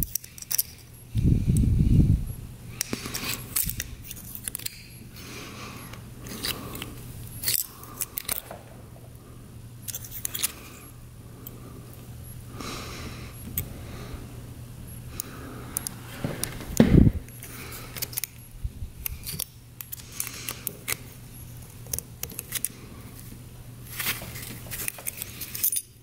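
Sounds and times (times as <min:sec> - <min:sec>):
small metal parts clicking: 0:00.0 - 0:00.9, 0:02.8 - 0:05.0, 0:06.3 - 0:08.6, 0:09.8 - 0:10.6, 0:17.9 - 0:18.4, 0:19.0 - 0:21.1, 0:21.8 - 0:22.8, 0:24.0 - 0:26.0
low hum: 0:00.0 - 0:25.7.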